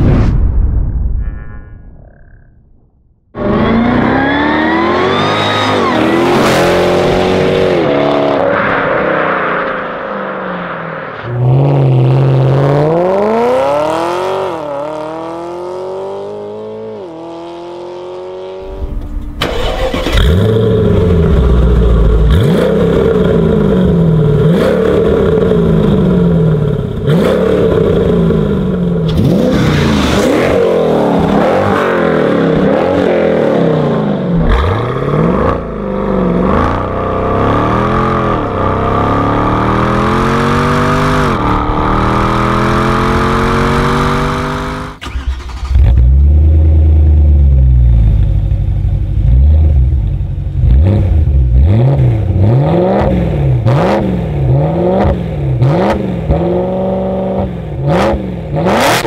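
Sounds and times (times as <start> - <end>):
sports cars accelerating hard: 27.1 - 45.8.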